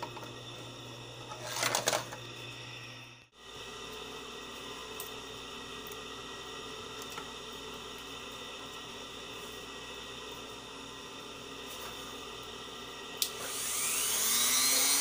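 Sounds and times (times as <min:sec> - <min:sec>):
background hum and hiss: 0:00.0 - 0:15.0
plastic housing rattling and scraping: 0:01.3 - 0:02.2.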